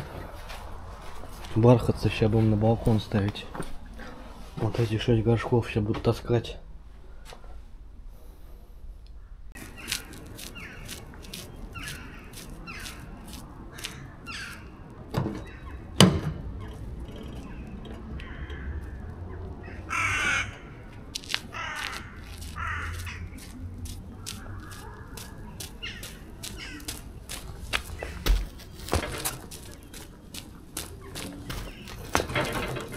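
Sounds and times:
crows cawing: 9.2 - 14.8, 16.6 - 20.9, 21.5 - 27.2.

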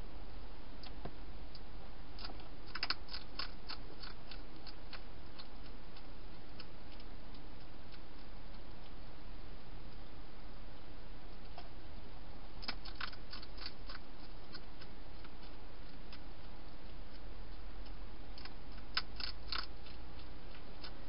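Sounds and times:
hedgehog crunching dry food: 2.2 - 9.0, 12.6 - 17.6, 18.3 - 21.0.

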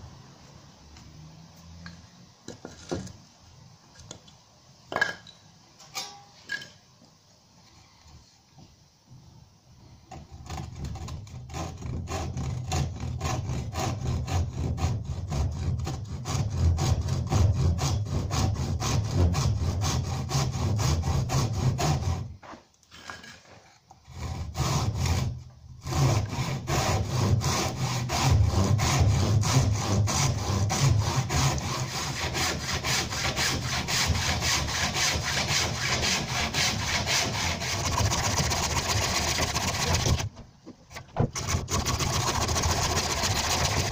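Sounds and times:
handsaw cutting wood: 10.1 - 22.4, 24.0 - 40.3, 41.2 - 43.9.

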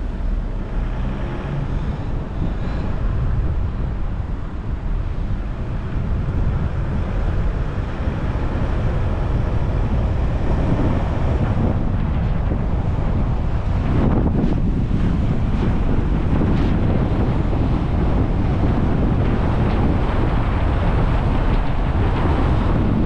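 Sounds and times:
car tyres and engine rumble: 0.0 - 23.0
wind noise: 0.0 - 23.0.

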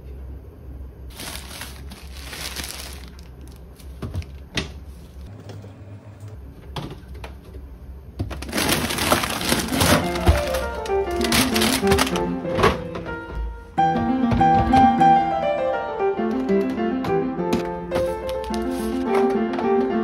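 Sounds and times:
plastic bag crinkling: 1.1 - 4.4, 8.4 - 12.3
plastic packaging crinkling: 1.1 - 4.5, 8.3 - 12.4, 18.1 - 19.1.

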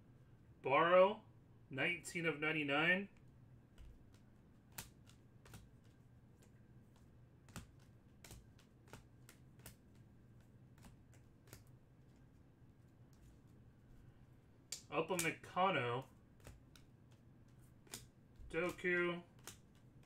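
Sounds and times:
low room hum: 0.0 - 20.0
cards clicking being flipped: 3.7 - 12.4, 14.7 - 15.4, 16.0 - 20.0.

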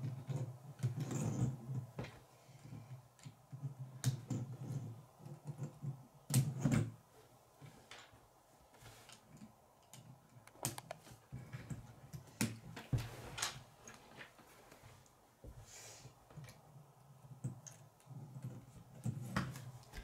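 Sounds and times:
plastic construction pieces clicking: 9.8 - 11.0.

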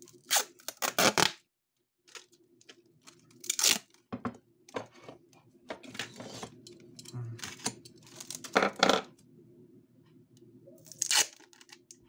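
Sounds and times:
packing tape tearing off roll: 0.0 - 1.4, 3.3 - 4.0, 10.9 - 11.8.

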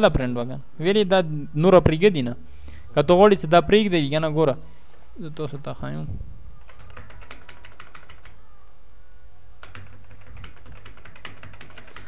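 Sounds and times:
computer keyboard typing: 6.6 - 8.4, 9.6 - 12.0.

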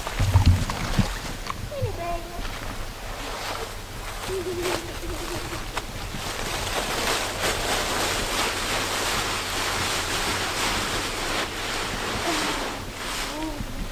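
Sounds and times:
footsteps through dry leaves: 3.3 - 13.6.

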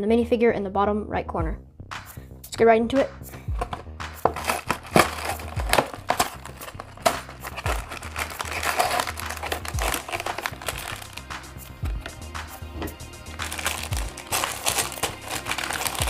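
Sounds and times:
background music with steady beat: 0.0 - 16.0
cardboard box being opened: 3.6 - 11.2, 13.4 - 16.0
plastic bags crinkling: 3.6 - 11.4, 13.3 - 16.0.

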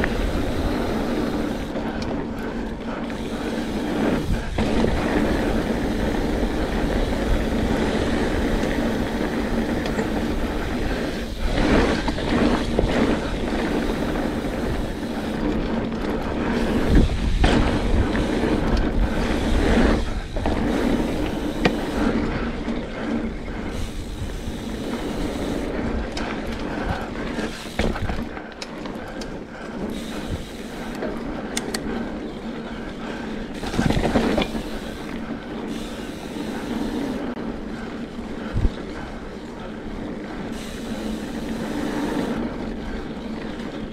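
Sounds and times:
bike tyre and drivetrain noise: 0.0 - 43.9
bike frame rattling and knocking: 33.5 - 35.0.

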